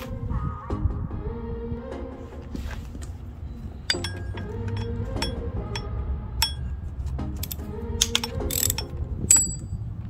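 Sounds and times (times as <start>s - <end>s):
socket wrench clinking on bolts: 3.9s - 6.8s, 7.4s - 9.8s.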